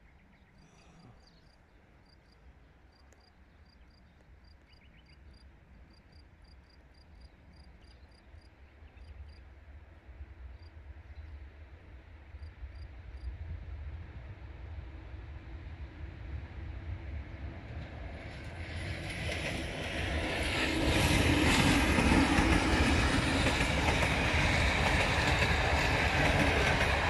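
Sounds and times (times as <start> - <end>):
cricket chirping: 0.7 - 9.5
train rumble: 3.7 - 27.0.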